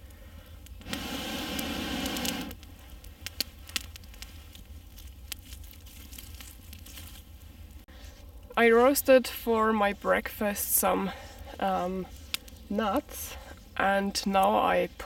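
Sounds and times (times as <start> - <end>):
campfire crackling: 0.0 - 15.0
fire popping sharply: 0.7 - 6.8.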